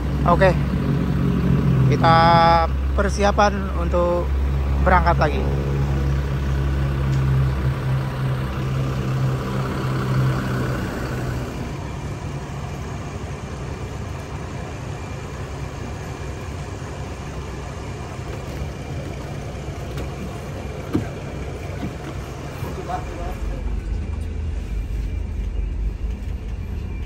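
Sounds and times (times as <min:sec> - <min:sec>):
bus diesel engine idling: 0:00.0 - 0:27.0.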